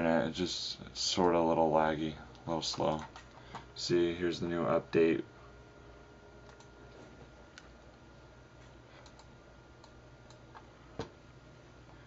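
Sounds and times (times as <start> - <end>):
low steady hum: 0.0 - 12.0
computer mouse and keyboard clicks: 2.3 - 3.6, 9.0 - 11.1.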